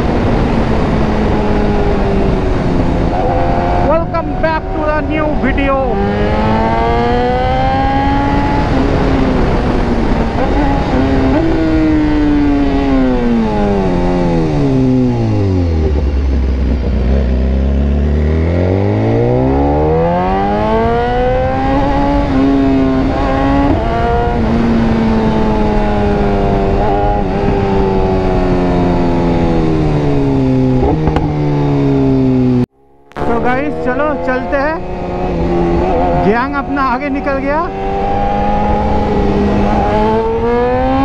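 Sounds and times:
motorcycle engine revving: 0:00.0 - 0:41.0.

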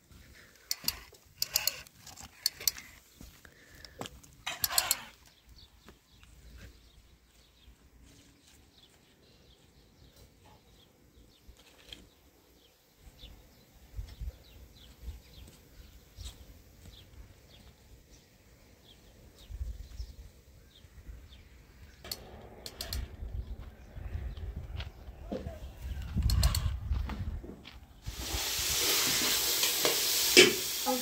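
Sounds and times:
small birds chirping: 0:00.1 - 0:26.9
wind rumble on microphone: 0:22.2 - 0:28.1.

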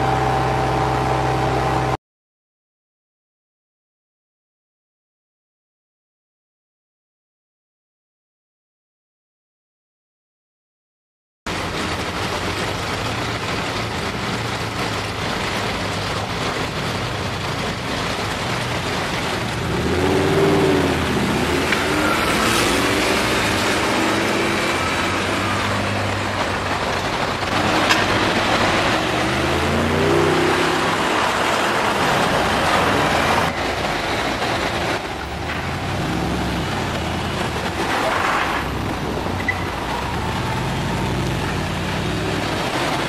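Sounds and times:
street traffic noise: 0:00.0 - 0:02.0, 0:11.5 - 0:43.0
sports car engine accelerating: 0:27.1 - 0:33.5.

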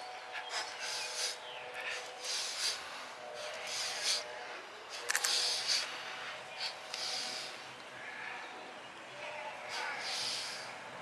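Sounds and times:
metallic clink: 0:05.1 - 0:05.5.

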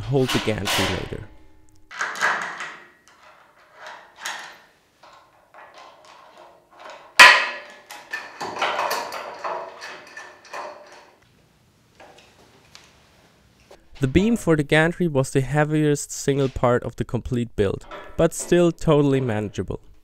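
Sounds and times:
rattling metal clanks: 0:00.0 - 0:11.2, 0:17.6 - 0:20.0.

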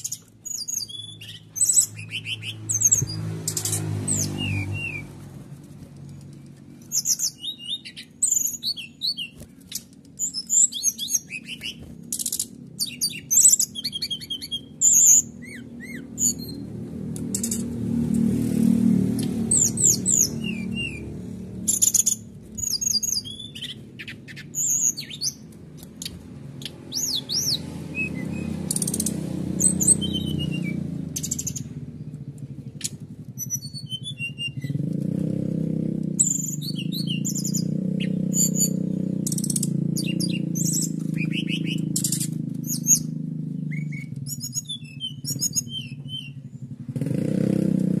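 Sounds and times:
bird chirps and trills: 0:00.0 - 0:05.3, 0:05.9 - 0:47.8.

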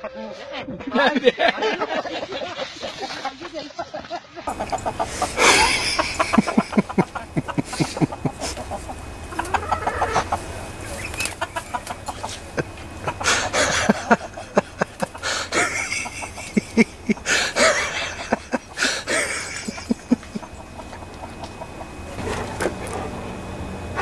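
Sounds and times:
chicken clucking: 0:04.5 - 0:23.2.

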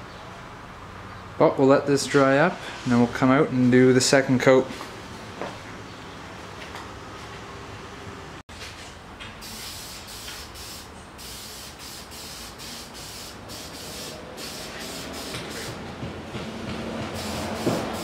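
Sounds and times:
aerosol spray can hissing: 0:09.4 - 0:15.8, 0:17.2 - 0:18.0.

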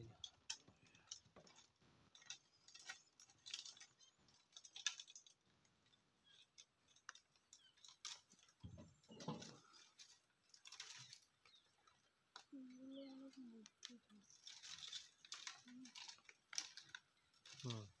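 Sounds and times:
soft rustles: 0:00.1 - 0:18.0
faint clicks: 0:09.4 - 0:17.9.

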